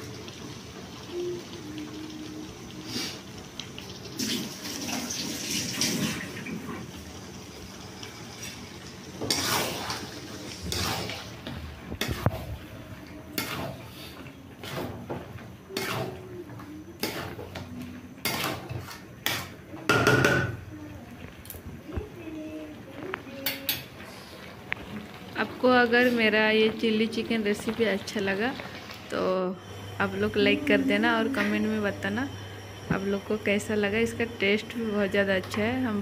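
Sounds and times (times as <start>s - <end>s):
frying sizzle: 0.0s - 36.0s
metal spatula scraping a wok: 9.2s - 11.4s, 15.8s - 16.2s, 17.0s - 17.6s, 18.2s - 19.5s.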